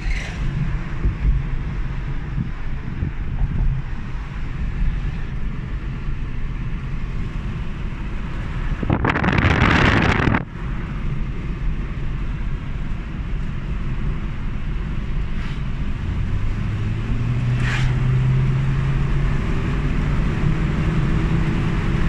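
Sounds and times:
car road rumble inside cabin: 0.0s - 22.0s
loud rushing noise: 8.8s - 10.5s.

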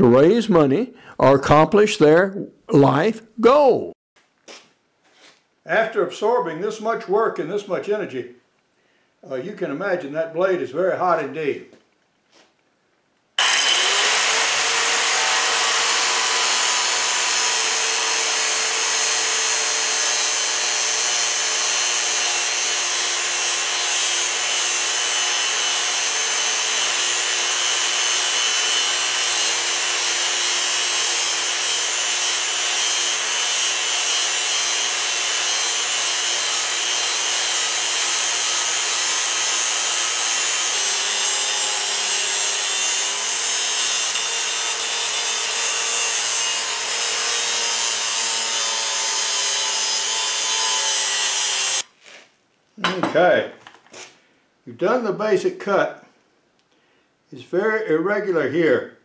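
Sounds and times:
angle grinder cutting steel: 13.4s - 51.9s.

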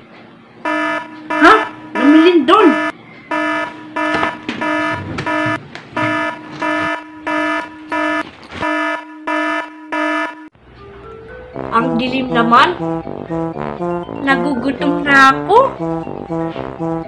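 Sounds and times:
electronic alarm beeping: 0.6s - 10.5s.

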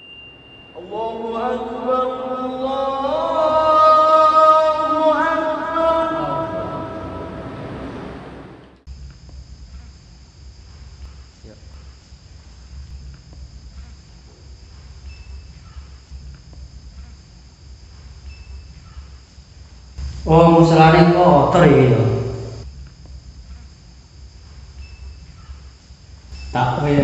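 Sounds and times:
insects chirring: 0.1s - 6.9s, 8.8s - 27.0s
chanted intro music: 0.8s - 8.6s
low room rumble: 1.0s - 27.0s.

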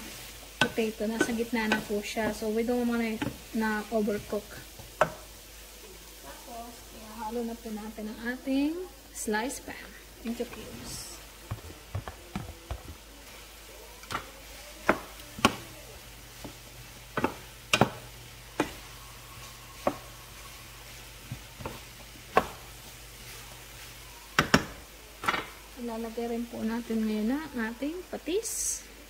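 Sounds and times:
spatula scraping frying pan: 0.0s - 5.3s
faint sizzle: 0.0s - 29.0s.

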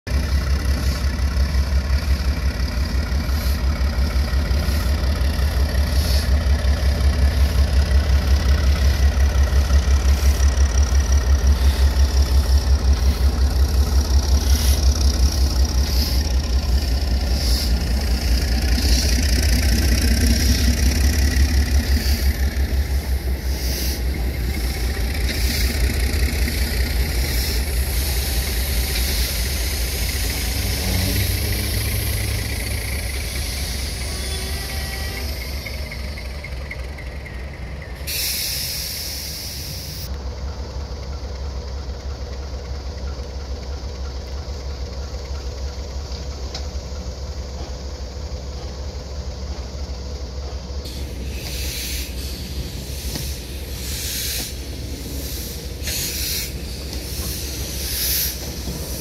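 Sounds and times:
diesel locomotive engine beating: 0.0s - 59.0s.

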